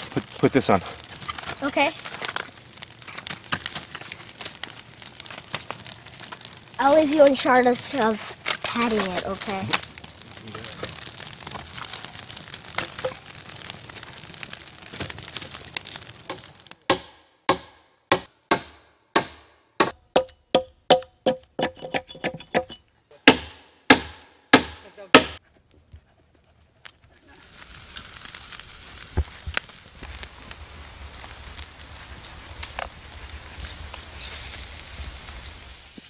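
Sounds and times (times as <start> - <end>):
campfire crackling: 0.0 - 19.9, 21.3 - 36.0
hatchet chopping log: 16.3 - 25.4.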